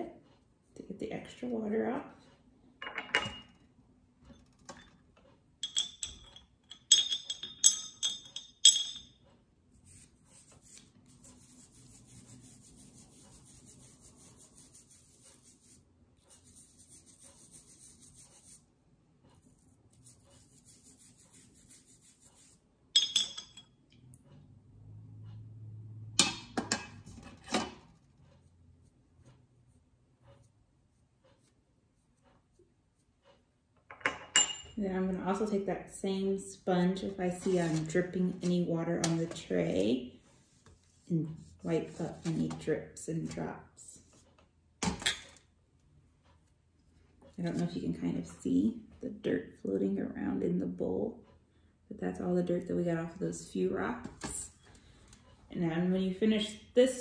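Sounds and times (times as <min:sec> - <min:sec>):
clinks on glass bowls: 0:05.6 - 0:09.2, 0:23.0 - 0:23.7
toothbrush scrubbing rock: 0:09.8 - 0:18.7, 0:19.9 - 0:22.6.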